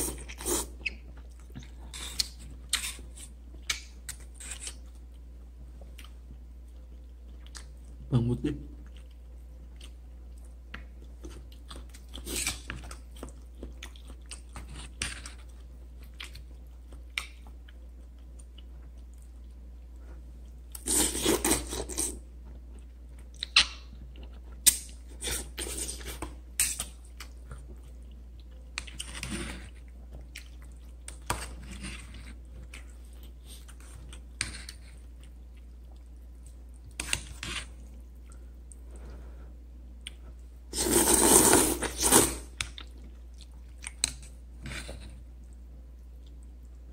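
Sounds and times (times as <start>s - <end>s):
person chewing: 0.0s - 8.1s, 8.8s - 39.3s, 39.9s - 46.9s
slurping noodles: 40.7s - 42.5s.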